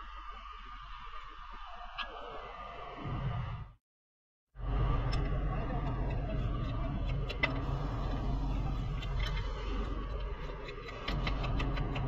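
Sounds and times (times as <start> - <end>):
low shop hum: 4.6 - 12.0.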